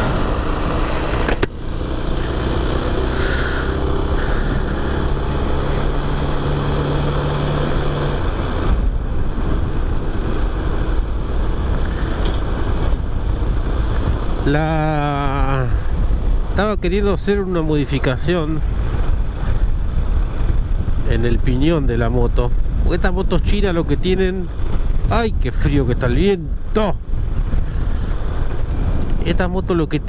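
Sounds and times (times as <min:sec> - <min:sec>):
motorcycle engine running: 0:00.0 - 0:29.8
wind noise on microphone: 0:00.0 - 0:30.0
man speaking: 0:14.5 - 0:15.8, 0:16.6 - 0:18.6, 0:25.1 - 0:27.0, 0:29.2 - 0:30.0.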